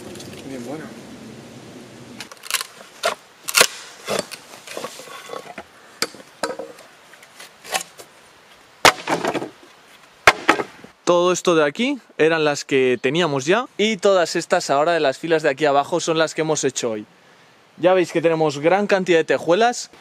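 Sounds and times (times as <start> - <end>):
wood pieces knocking together: 2.2 - 6.8, 8.8 - 9.6, 10.3 - 10.8.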